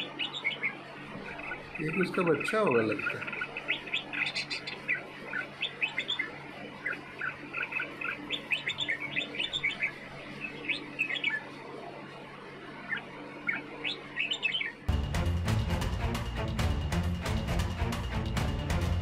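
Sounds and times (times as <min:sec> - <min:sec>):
birds chirping: 0:00.0 - 0:14.9.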